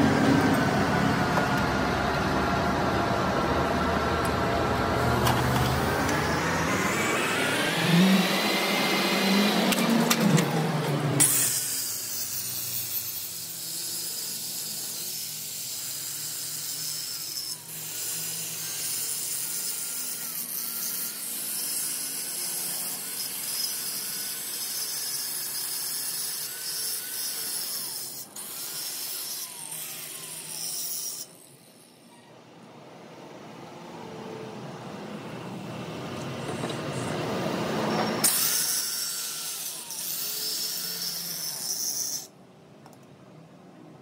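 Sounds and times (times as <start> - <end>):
angle grinder grinding steel: 4.2 - 32.2, 36.4 - 42.4.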